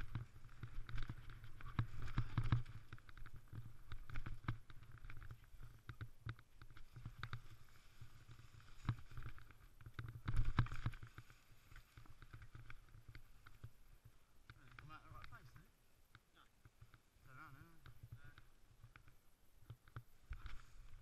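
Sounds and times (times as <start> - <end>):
bike rattling and knocking: 0.0 - 7.4.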